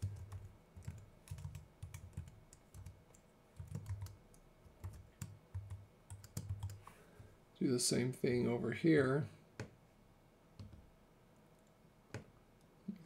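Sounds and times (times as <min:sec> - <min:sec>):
typing on computer keyboard: 0:00.0 - 0:06.8.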